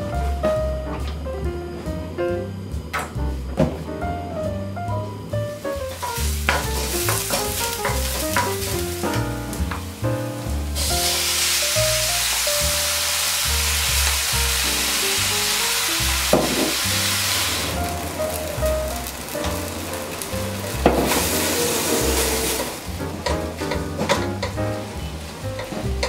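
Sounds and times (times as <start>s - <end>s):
background music: 0.0s - 26.0s
food sizzling in hot oil: 5.6s - 26.0s
spoon knocking on pan: 23.2s - 24.6s.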